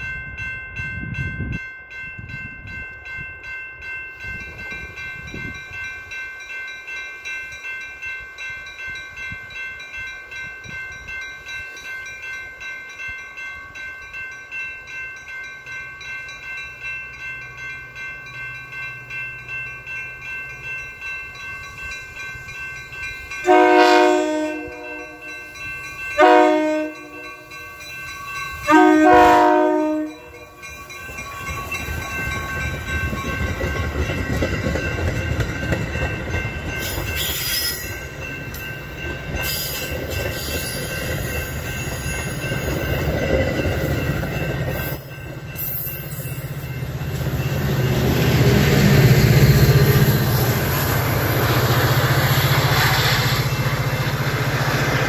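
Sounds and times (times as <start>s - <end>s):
diesel locomotive: 0.0s - 55.0s
train coaches rumbling past: 0.0s - 55.0s
train horn chord blasts: 23.4s - 25.3s, 26.2s - 27.5s, 28.7s - 30.5s
train wheel clicks: 30.7s - 55.0s.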